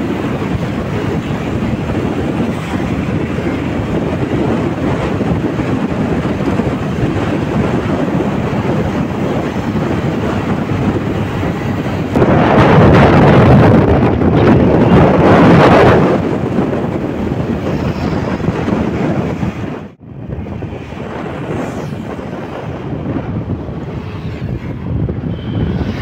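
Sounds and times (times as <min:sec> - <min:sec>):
motorcycle engine: 0:00.0 - 0:19.1
road noise: 0:00.0 - 0:26.0
wind buffeting microphone: 0:00.0 - 0:26.0.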